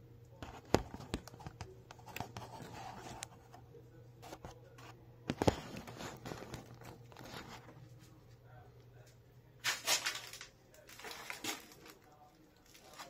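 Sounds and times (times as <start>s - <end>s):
faint low hum: 0.0s - 13.0s
camera scraping against paper: 0.4s - 3.6s, 4.2s - 7.9s.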